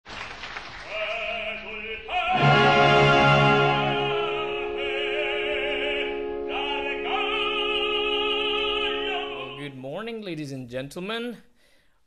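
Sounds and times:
operatic singing with vibrato: 0.8s - 9.9s
sustained accompaniment: 2.2s - 9.7s.

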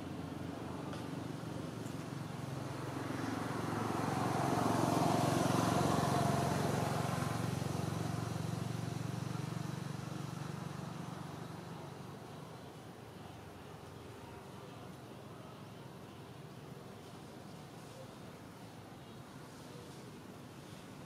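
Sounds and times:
vehicle passing by: 2.1s - 11.8s.

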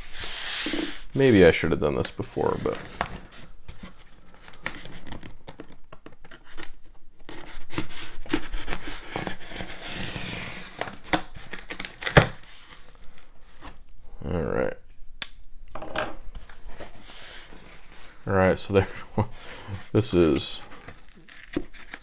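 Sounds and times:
cardboard scraping and rustling: 2.4s - 13.8s, 19.2s - 22.0s
packing tape tearing: 6.3s - 13.3s, 20.4s - 22.0s.

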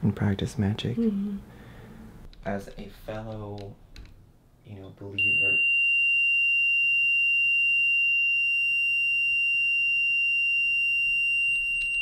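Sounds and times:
high-pitched electronic alarm tone: 5.2s - 12.0s.

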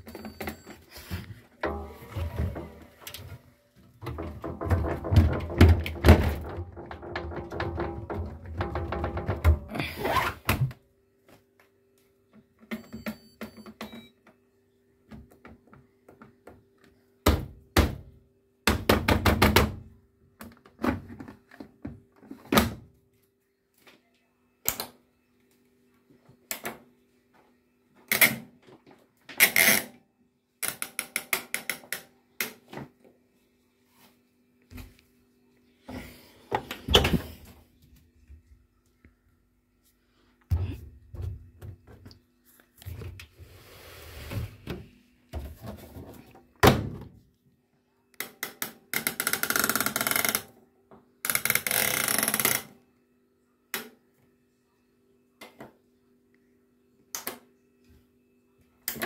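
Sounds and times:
washing machine door knocks: 4.1s - 9.7s.

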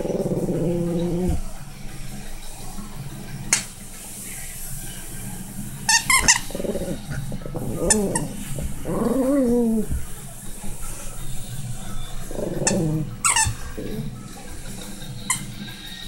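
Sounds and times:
dog growling: 0.0s - 1.8s, 5.9s - 15.6s.

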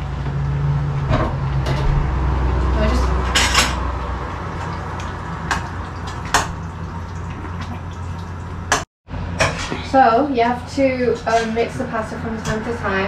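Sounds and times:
water boiling in a pot: 2.3s - 8.8s.

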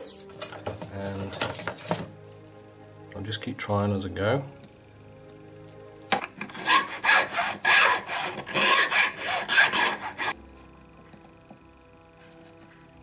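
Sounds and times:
hand file rasping on metal: 6.4s - 10.4s.

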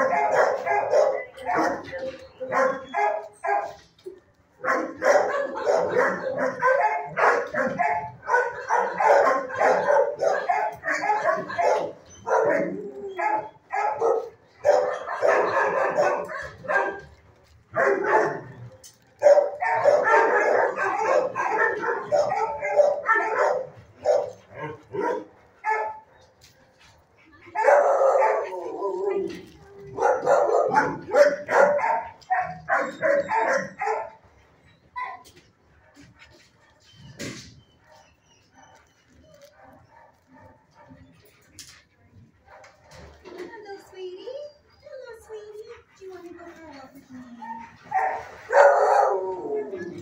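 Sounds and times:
dogs barking: 0.0s - 3.9s, 4.6s - 17.1s, 17.7s - 26.3s, 27.5s - 34.2s, 37.8s - 41.4s, 46.1s - 50.0s.

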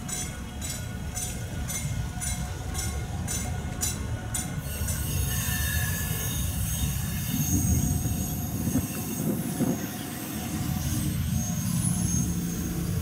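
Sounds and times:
electric train rumbling: 0.0s - 13.0s
wheel squeal and hiss: 4.6s - 13.0s.

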